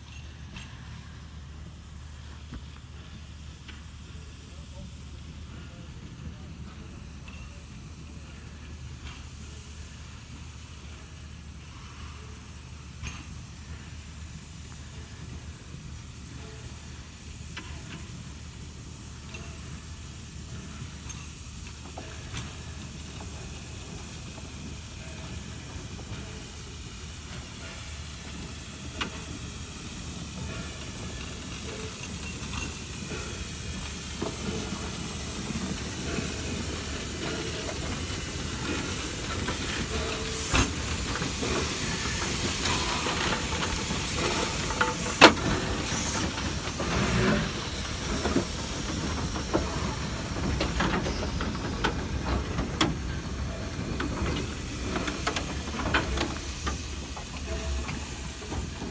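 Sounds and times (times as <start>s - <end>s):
steam locomotive hissing: 0.0s - 58.9s.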